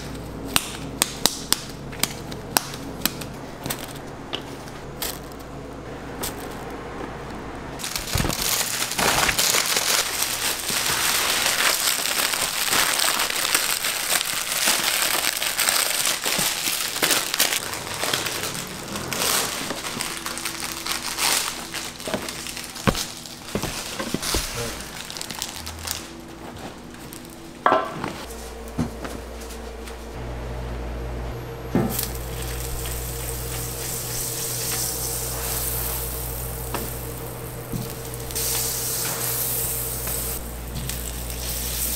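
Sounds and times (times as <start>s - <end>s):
steady hum: 0.0s - 41.9s
food packaging crinkling: 7.8s - 27.5s, 32.0s - 41.9s.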